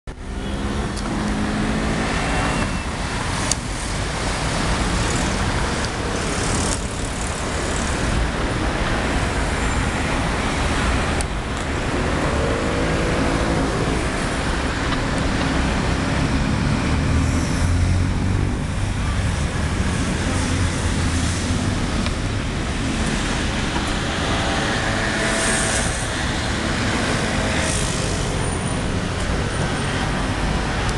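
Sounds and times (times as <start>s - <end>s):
city street traffic: 0.0s - 30.9s
passing vehicle engine: 0.1s - 30.9s.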